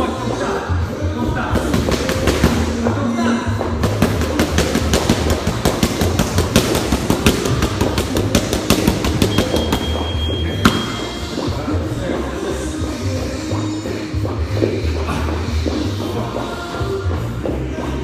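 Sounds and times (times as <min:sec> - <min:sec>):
background music: 0:00.0 - 0:18.0
boxing gloves smacking mitts: 0:03.8 - 0:09.9.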